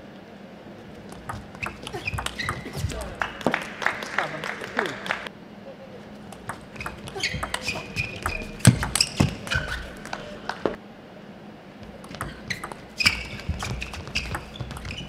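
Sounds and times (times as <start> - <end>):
sneakers squeaking on floor: 0.9 - 3.8, 6.2 - 10.8, 11.8 - 15.0
table tennis ball clicks: 1.1 - 3.0, 6.3 - 10.2, 11.8 - 15.0.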